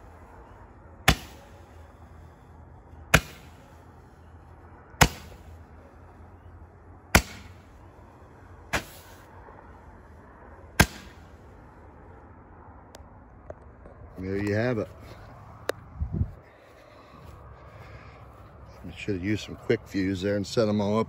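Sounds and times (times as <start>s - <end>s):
firework hiss: 8.7s - 9.3s.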